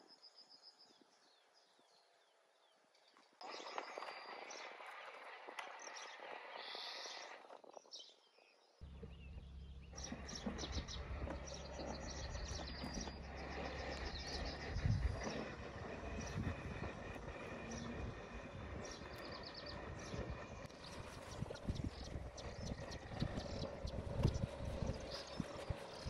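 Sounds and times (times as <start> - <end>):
birds chirping: 0.0 - 26.0
low steady hum: 8.8 - 26.0.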